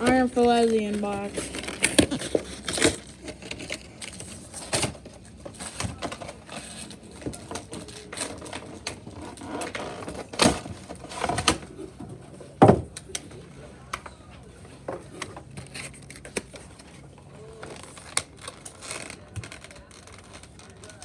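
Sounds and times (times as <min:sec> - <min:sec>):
card box packaging handling: 0:00.0 - 0:11.6.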